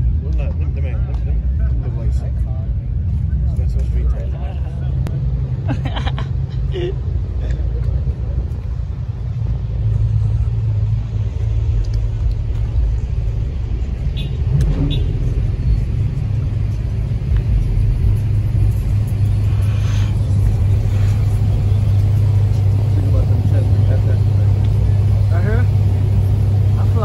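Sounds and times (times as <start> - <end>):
truck engine rumble: 0.0 - 27.0.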